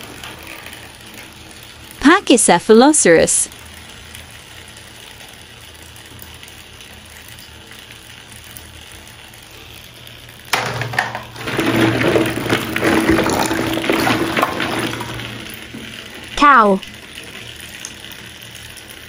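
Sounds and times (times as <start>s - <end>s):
plastic balls rattling together: 10.7s - 16.4s.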